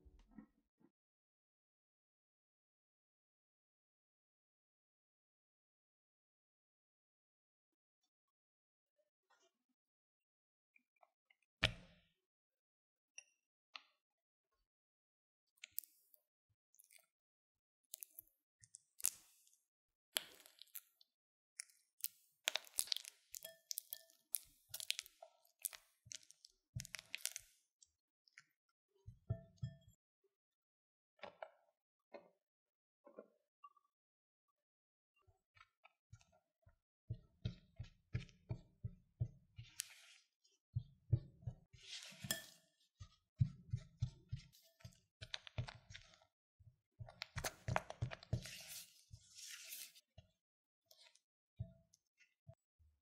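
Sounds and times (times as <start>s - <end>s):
spatula scraping butter in glass bowl: 41.8s - 42.7s.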